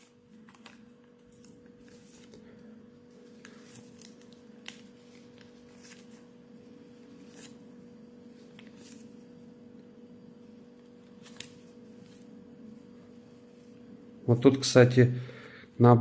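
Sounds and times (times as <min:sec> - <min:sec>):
paper rustling and flicking: 0:00.0 - 0:09.3, 0:10.8 - 0:12.4
steady low hum: 0:00.0 - 0:16.0.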